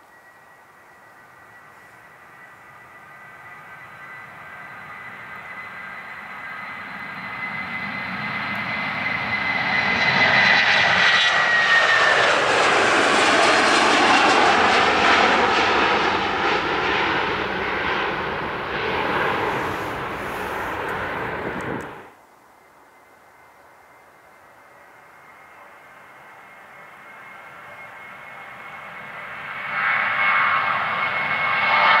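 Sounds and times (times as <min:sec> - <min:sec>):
jet engines at take-off: 0:00.0 - 0:32.0.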